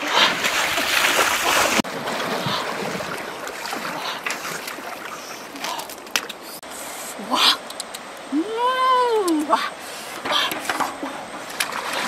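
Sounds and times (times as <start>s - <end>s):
water splashing from wading: 0.0s - 6.4s
running water: 0.0s - 12.0s.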